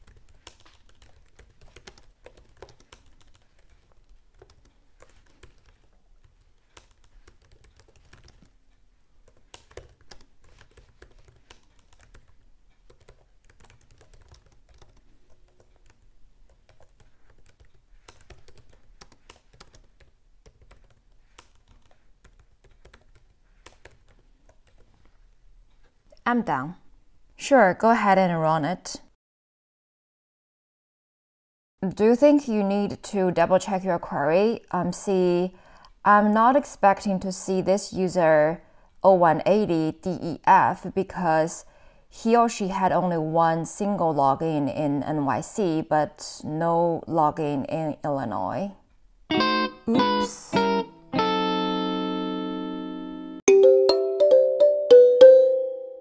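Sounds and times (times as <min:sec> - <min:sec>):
faint keyboard typing: 0:00.0 - 0:26.2, 0:35.5 - 0:36.0.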